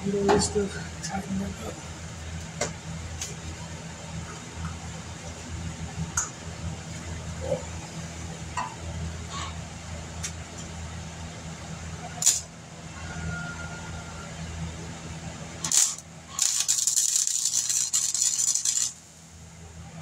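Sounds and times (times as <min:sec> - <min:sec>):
steady low hum: 0:00.0 - 0:20.0
welder crackling: 0:12.2 - 0:12.5, 0:15.6 - 0:19.1.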